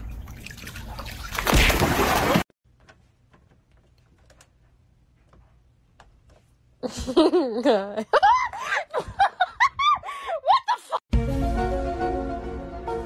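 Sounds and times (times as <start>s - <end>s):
water splashing and sloshing: 0.0s - 2.6s.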